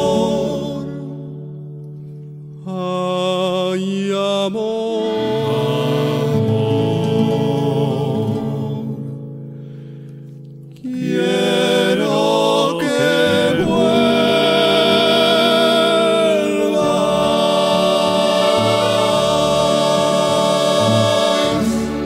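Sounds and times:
men's vocal group singing: 0.0 - 1.2, 2.7 - 9.0, 10.8 - 22.0
accordion: 5.1 - 9.1, 10.8 - 22.0.

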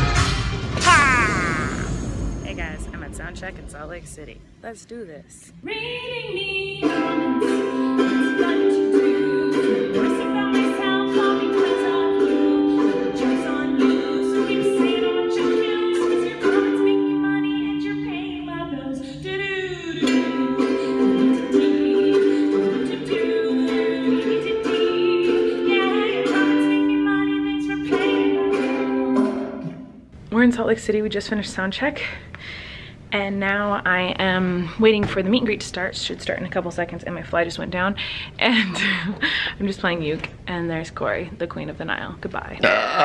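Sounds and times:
woman singing into a microphone: 5.5 - 29.5
ukulele strumming: 6.7 - 30.0.

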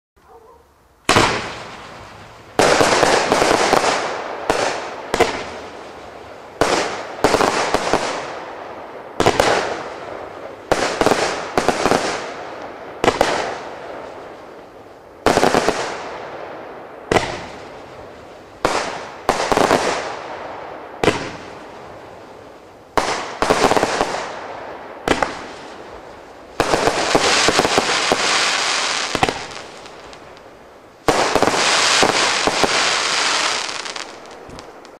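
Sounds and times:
firework shots: 1.0 - 34.9.

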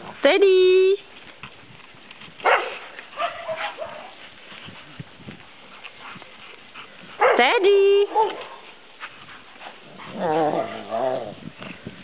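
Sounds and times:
dog barking: 2.4 - 4.1, 7.2 - 7.5, 8.1 - 8.6
dog yipping: 2.4 - 4.1.

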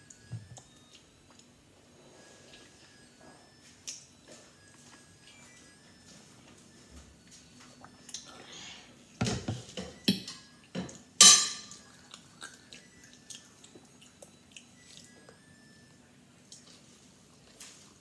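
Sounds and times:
soft chewing: 0.0 - 9.1, 11.7 - 18.0
fork clinking on plate: 11.2 - 11.8.

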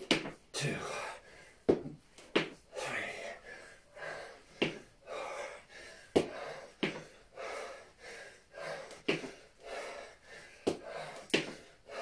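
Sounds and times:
man breathing hard: 0.5 - 12.0.

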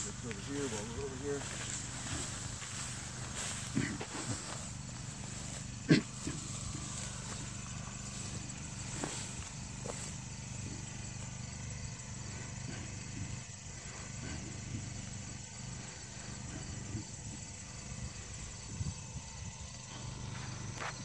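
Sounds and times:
leaves and branches rustling: 0.0 - 11.9
pump engine humming: 0.0 - 21.0.

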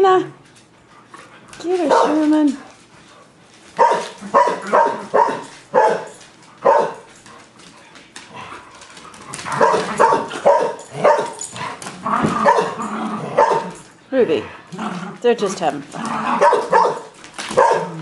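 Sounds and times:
dog play barks: 1.6 - 2.5, 3.8 - 7.1, 9.3 - 13.9, 14.8 - 18.0.

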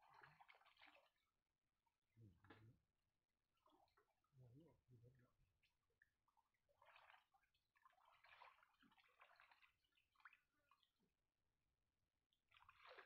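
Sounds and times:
river water sloshing and splashing: 0.0 - 1.2, 6.2 - 11.0, 12.5 - 13.0.

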